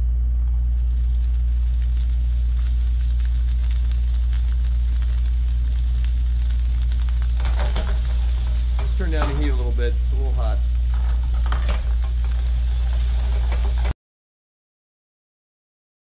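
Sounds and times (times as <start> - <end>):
steady low hum: 0.0 - 14.0
meat sizzling and crackling: 0.6 - 14.0.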